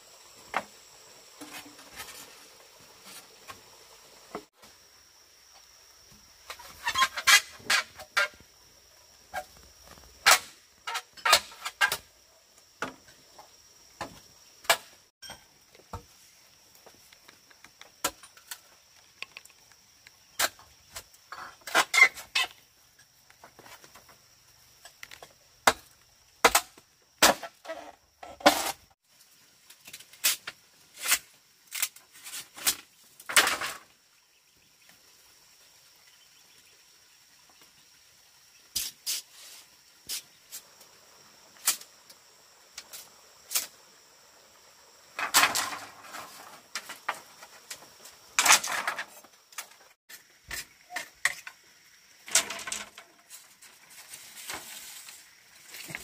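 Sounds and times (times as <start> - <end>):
scraping and rustling: 52.3 - 56.0.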